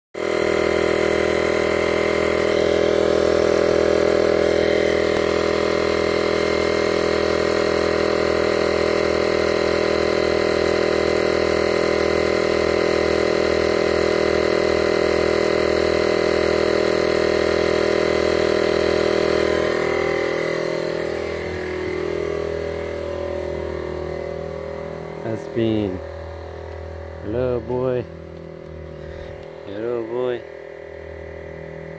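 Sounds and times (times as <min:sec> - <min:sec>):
air compressor pulsing: 0:00.2 - 0:31.9
faint hum: 0:19.6 - 0:31.9.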